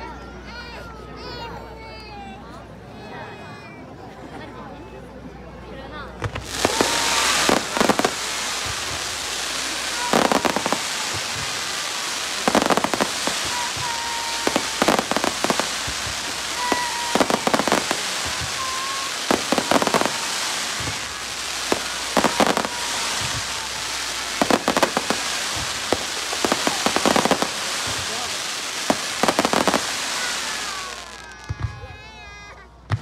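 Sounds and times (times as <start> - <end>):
fireworks crackling pops: 6.1 - 32.3
fireworks fizzing hiss: 6.1 - 32.3.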